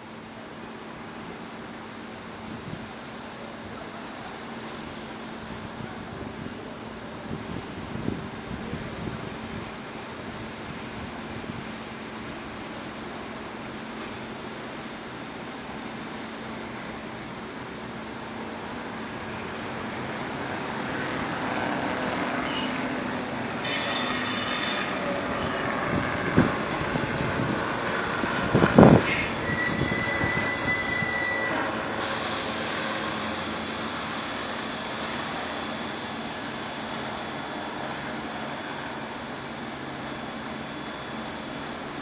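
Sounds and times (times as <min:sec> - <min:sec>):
train wheels rumbling: 0:00.0 - 0:42.0
high wheel squeal: 0:22.0 - 0:27.6, 0:28.5 - 0:42.0.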